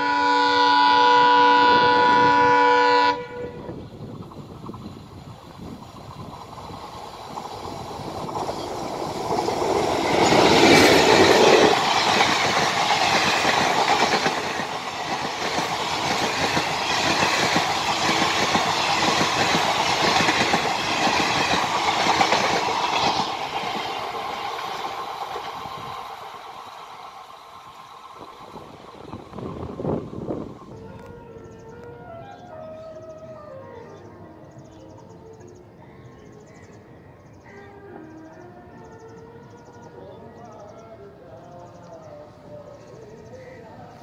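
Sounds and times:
diesel locomotive passing: 0.0s - 44.0s
train wheels clattering on rails: 4.1s - 30.4s.

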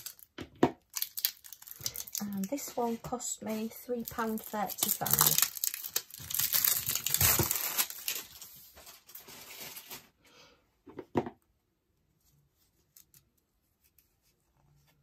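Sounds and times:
plastic wrapping crinkling: 0.0s - 10.2s.

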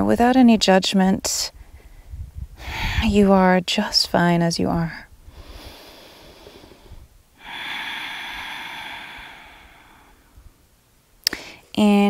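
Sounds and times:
woman breathing deeply: 5.2s - 10.6s.

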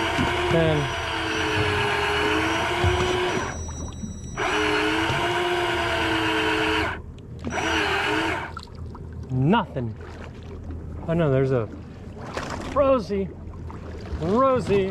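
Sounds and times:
electric reel motor whining: 0.0s - 8.6s.

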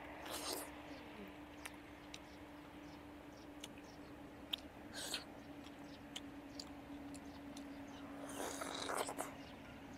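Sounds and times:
biting into fruit: 0.2s - 0.7s, 4.4s - 9.4s
wet mouth clicks and chewing: 1.6s - 2.4s, 3.6s - 3.8s, 4.4s - 9.4s.

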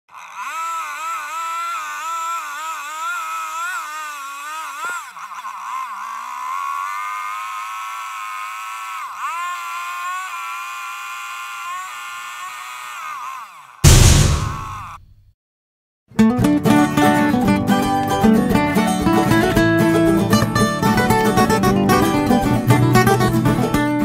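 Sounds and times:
chainsaw cutting log under load: 0.1s - 15.0s.

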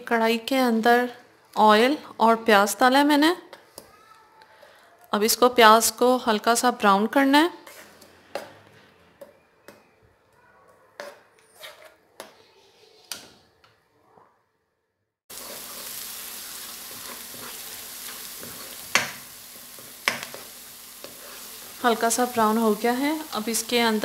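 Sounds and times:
onions sizzling in oil: 15.3s - 24.0s
spoon tapping and scraping pan: 16.9s - 21.8s.

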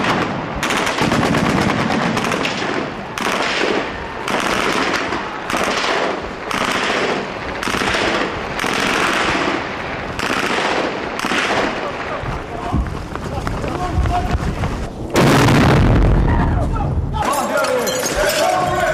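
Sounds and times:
gunfire bursts: 0.0s - 12.2s.

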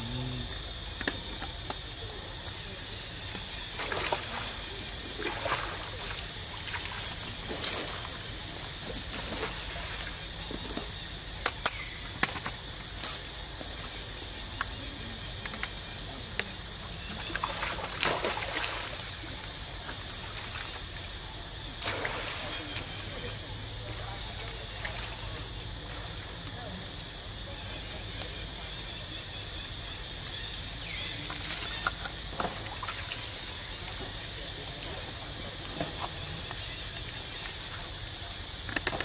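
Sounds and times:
water sloshing and splashing: 3.4s - 11.2s, 17.0s - 23.2s.

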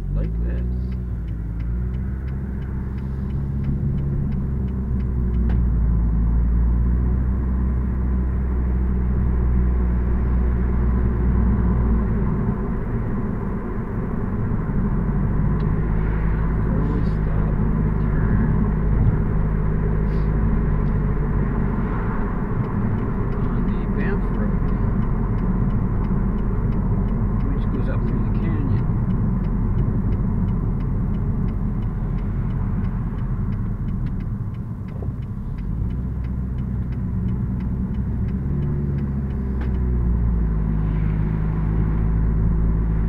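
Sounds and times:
car engine: 0.0s - 43.0s
road rumble: 0.0s - 43.0s
light ticking: 0.1s - 6.3s, 19.5s - 40.6s.

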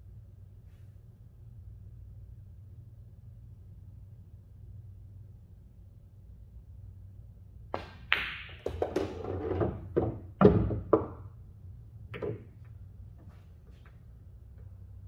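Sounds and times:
pool balls knocking and clunking: 7.7s - 13.9s
cue tip clicking ball: 7.8s - 11.3s.

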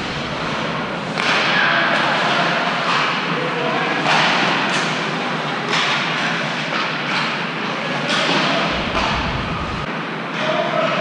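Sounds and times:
low rumble: 0.0s - 0.9s, 8.6s - 9.9s
echoing arena din: 0.0s - 5.7s, 7.8s - 11.0s.

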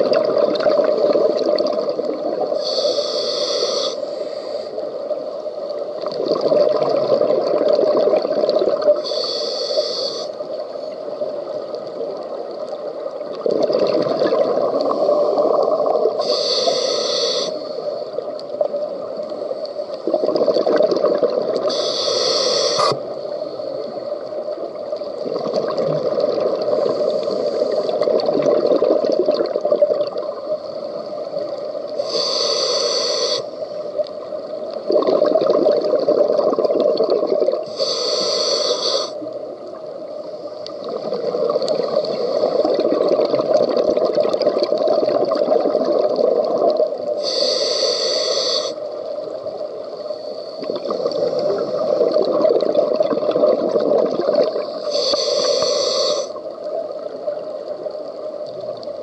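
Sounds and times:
regulator hissing inhalations: 2.6s - 5.1s, 9.0s - 10.5s, 16.2s - 18.2s, 21.7s - 24.0s, 26.7s - 28.0s, 31.9s - 33.8s, 37.6s - 39.3s, 47.2s - 49.0s, 49.9s - 52.0s, 54.7s - 56.5s
bubbling exhalations: 6.2s - 9.0s, 13.4s - 16.2s, 20.0s - 21.8s, 25.2s - 27.1s, 27.9s - 30.3s, 34.8s - 37.7s, 40.8s - 46.9s, 50.6s - 54.8s.

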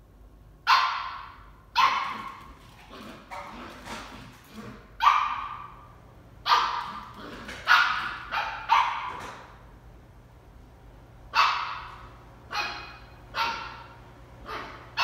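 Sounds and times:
puppy barking: 0.7s - 3.8s, 5.0s - 9.4s, 11.3s - 15.0s.

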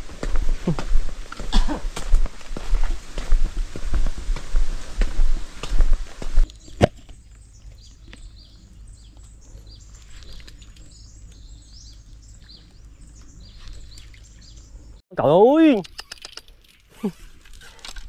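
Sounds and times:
steady low hum: 0.0s - 15.0s
birds chirping and calling: 5.0s - 15.0s.

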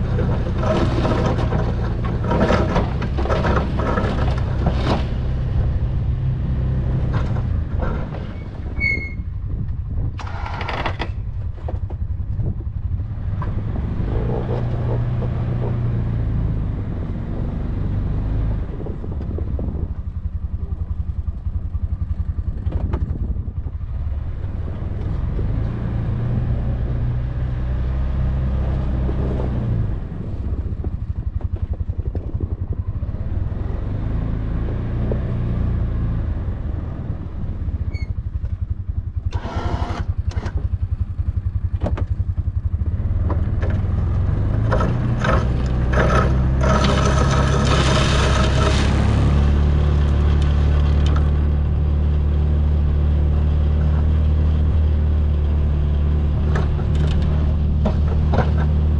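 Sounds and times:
plow blade scraping snow and gravel: 0.0s - 9.2s, 10.2s - 11.8s, 39.3s - 40.8s, 42.6s - 58.9s
single-cylinder engine running: 9.5s - 27.3s, 28.6s - 58.9s.

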